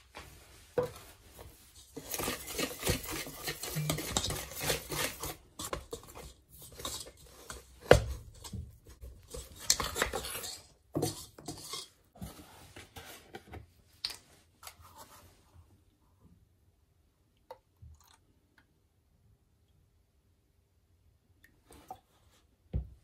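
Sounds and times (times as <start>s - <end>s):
whisk scraping a metal bowl: 1.7s - 12.0s.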